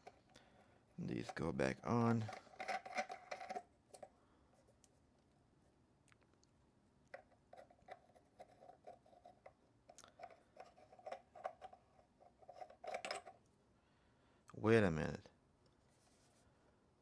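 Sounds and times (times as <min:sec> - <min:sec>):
plastic parts rubbing and clicking: 0:01.0 - 0:04.1, 0:07.1 - 0:13.4.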